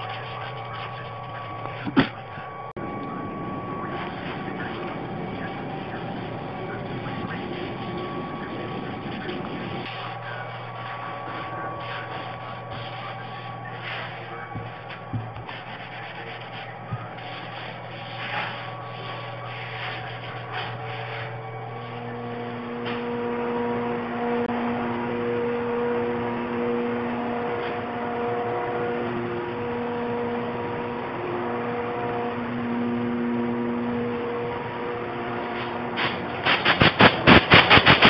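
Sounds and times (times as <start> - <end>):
steady hum of held tones: 0.0 - 38.0
gloved hand rubbing wooden door: 11.2 - 21.3.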